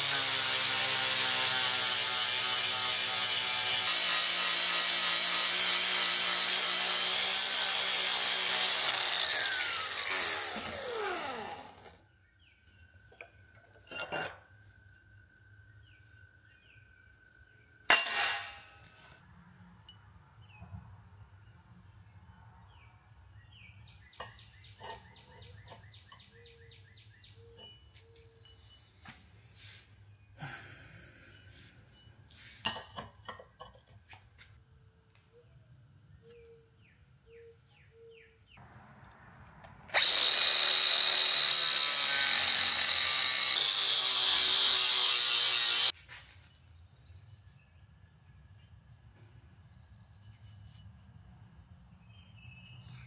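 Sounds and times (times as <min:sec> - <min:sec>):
angle grinder cutting steel pipe: 0:00.0 - 0:12.0, 0:39.9 - 0:46.0.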